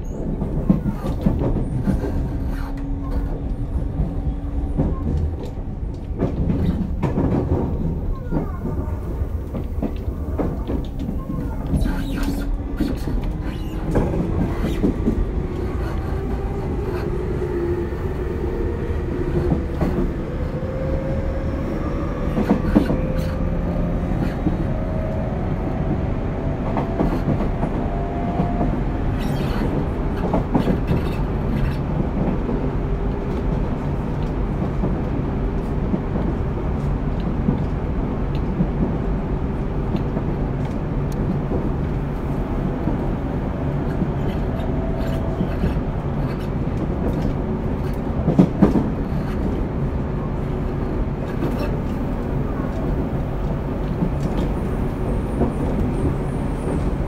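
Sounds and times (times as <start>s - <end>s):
rail clacks: 0.0s - 57.0s
wheel-on-rail rumble: 0.0s - 57.0s.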